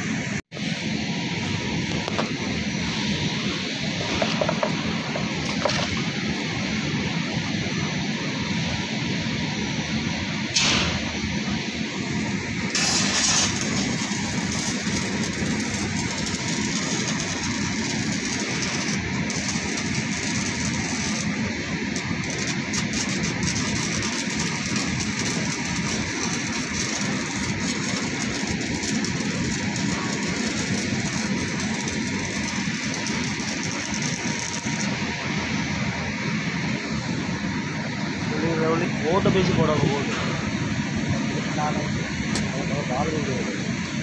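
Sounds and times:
welding arc crackling and hissing: 0.0s - 7.5s, 9.4s - 40.0s.

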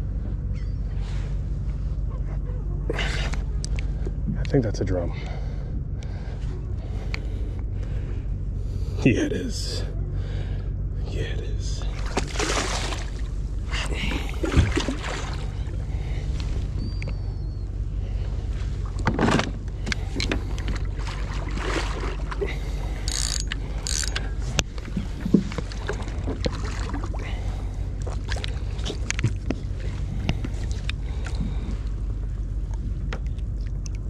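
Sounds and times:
steady low hum: 0.0s - 34.0s
water splashing: 11.8s - 16.3s, 20.0s - 23.0s, 24.8s - 31.9s
gear knocking against a kayak: 18.9s - 21.4s, 23.0s - 27.0s, 28.4s - 31.9s.

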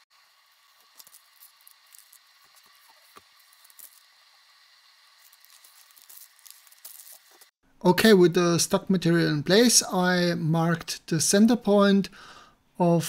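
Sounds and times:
plastic liner crinkling: 5.2s - 7.5s.

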